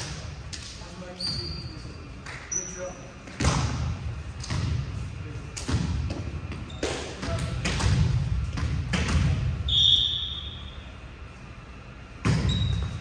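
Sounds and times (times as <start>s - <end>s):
shoe squeak: 1.1s - 3.1s, 6.6s - 7.0s, 12.3s - 13.0s.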